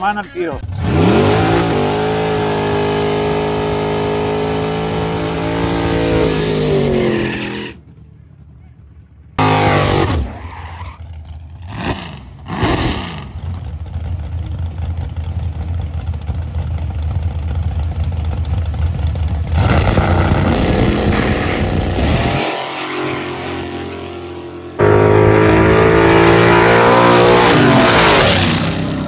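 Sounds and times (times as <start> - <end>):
racing car engines revving: 0.0 - 29.0.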